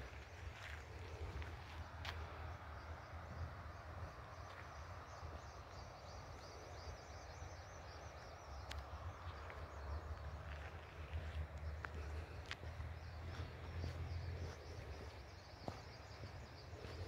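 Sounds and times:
steady low rumble: 0.0s - 17.0s.

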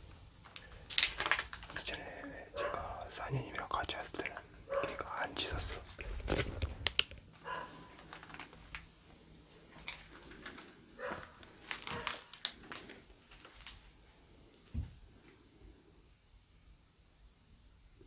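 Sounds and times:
sharp clicks and crinkles: 0.4s - 2.0s, 5.7s - 8.9s, 9.7s - 14.7s
soft rustles: 5.6s - 15.5s.

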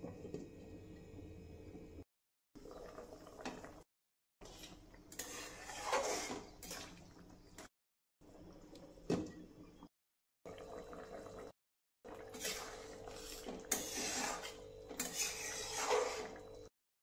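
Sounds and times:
wooden spatula scraping pan: 4.4s - 6.9s, 12.3s - 16.4s.

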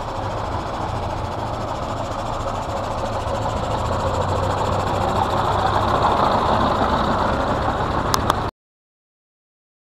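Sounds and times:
diesel engine idling: 0.0s - 8.5s.

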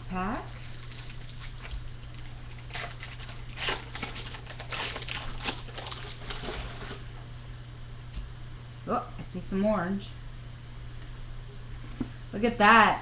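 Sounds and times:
card pack wrapper crinkling and tearing: 0.5s - 7.1s.

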